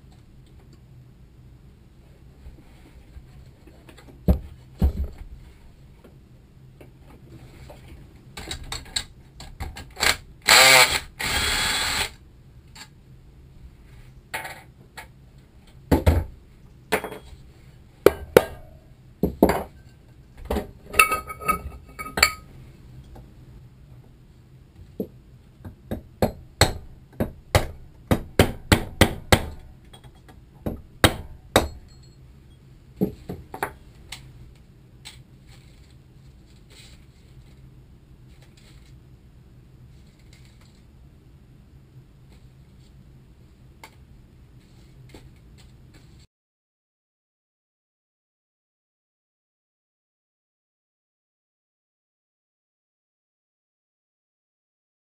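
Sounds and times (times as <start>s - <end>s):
cordless drill running: 10.5s - 12.2s.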